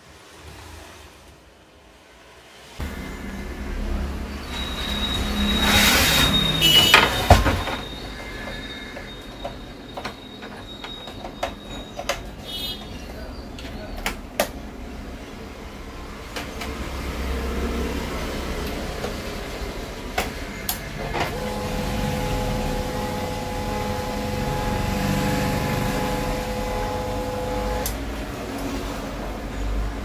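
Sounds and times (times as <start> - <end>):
printer motor and gears whine: 2.8 - 12.5, 20.2 - 28.4.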